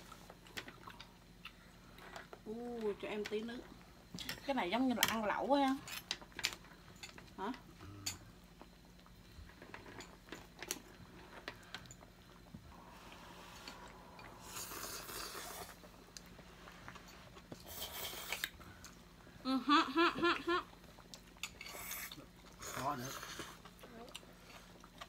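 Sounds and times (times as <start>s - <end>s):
slurping noodles: 12.9s - 15.9s, 17.6s - 18.6s, 21.6s - 23.6s
person laughing: 19.5s - 20.7s.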